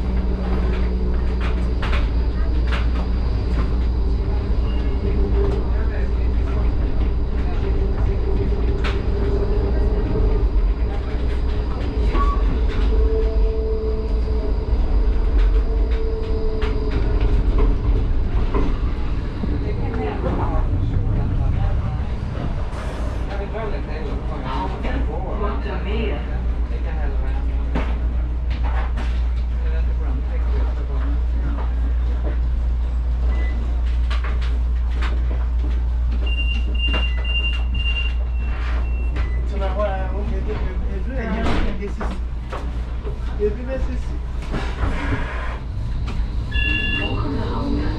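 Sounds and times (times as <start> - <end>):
tram rumbling on rails: 0.0 - 47.9
high-pitched warning beeps: 46.5 - 47.2.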